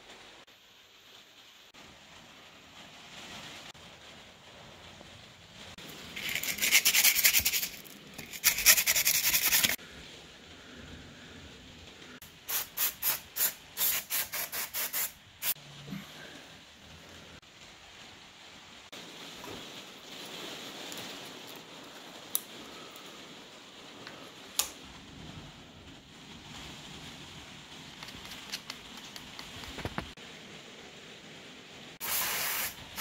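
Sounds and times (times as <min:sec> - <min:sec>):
sandpaper rubbing on metal: 0:06.2 - 0:09.8.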